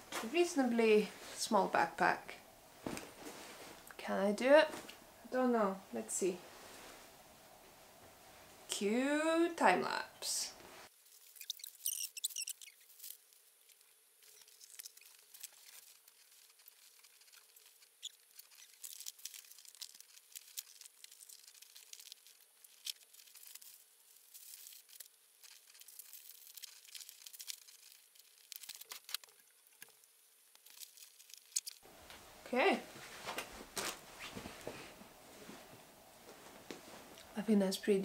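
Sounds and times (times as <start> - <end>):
clothes rustling: 0.0 - 1.5, 2.6 - 5.2, 5.8 - 8.7, 30.6 - 37.4
plastic bag crinkling: 11.0 - 31.8.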